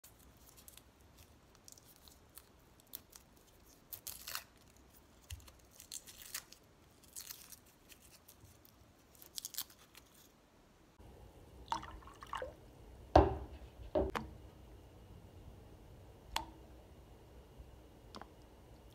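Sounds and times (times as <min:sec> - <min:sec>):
garlic skins crackling and rustling: 0:00.0 - 0:10.4
pot of water boiling: 0:11.0 - 0:14.1.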